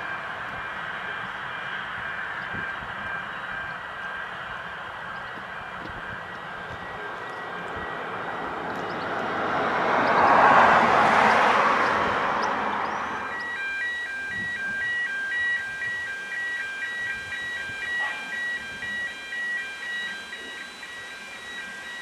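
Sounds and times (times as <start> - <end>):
vehicle passing: 0.0 - 14.4.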